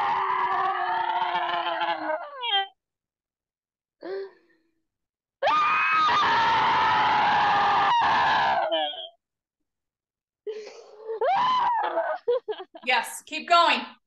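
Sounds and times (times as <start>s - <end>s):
woman screaming: 5.4s - 9.0s, 11.2s - 12.2s.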